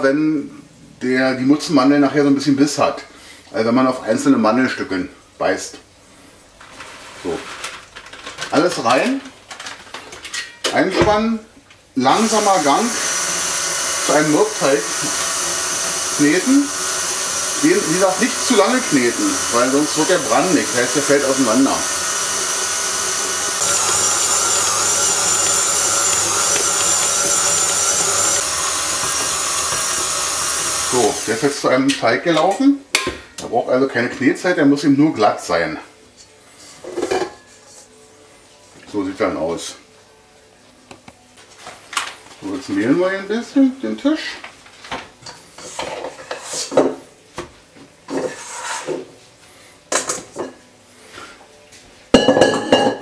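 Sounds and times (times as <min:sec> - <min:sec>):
stand mixer motor humming: 0:12.9 - 0:31.4
scraper scraping a steel bowl: 0:15.0 - 0:31.3, 0:48.2 - 0:48.9.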